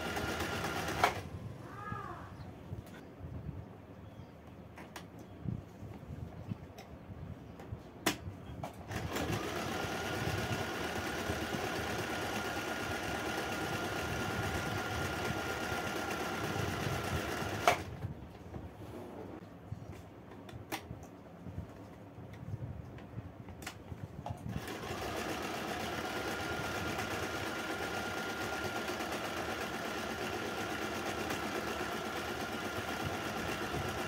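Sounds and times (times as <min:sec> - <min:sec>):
sewing machine running: 0:00.0 - 0:01.2, 0:08.9 - 0:17.9, 0:24.5 - 0:34.0.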